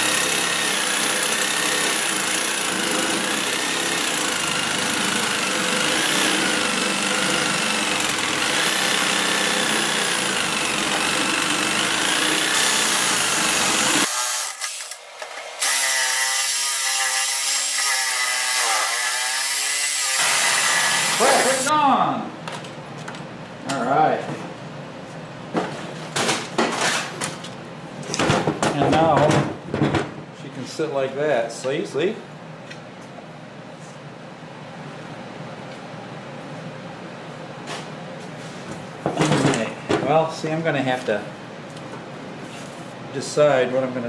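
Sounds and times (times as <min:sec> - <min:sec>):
reciprocating saw cutting metal: 0:00.0 - 0:21.7.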